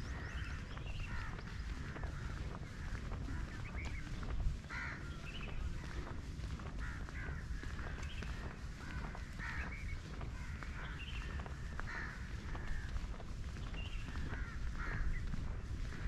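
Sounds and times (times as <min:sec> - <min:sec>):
birds short harsh calls: 0:00.0 - 0:06.1, 0:06.8 - 0:16.0.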